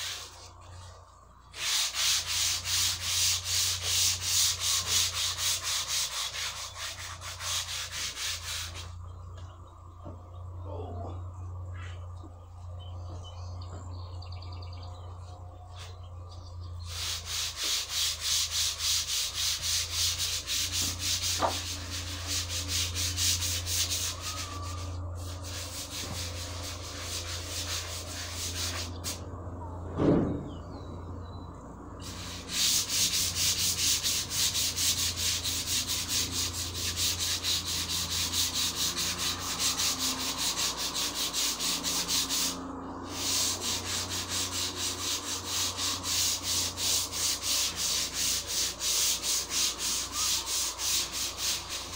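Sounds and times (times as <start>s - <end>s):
sandpaper rubbing on wood: 0.0s - 0.9s, 1.5s - 9.0s, 16.8s - 29.3s, 32.0s - 51.9s.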